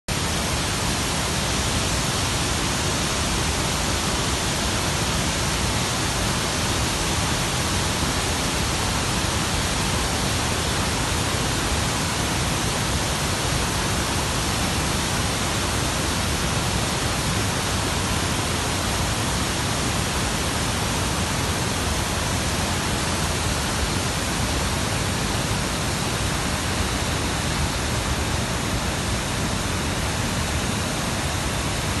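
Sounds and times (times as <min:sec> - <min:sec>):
waterfall rushing: 0:00.1 - 0:32.0.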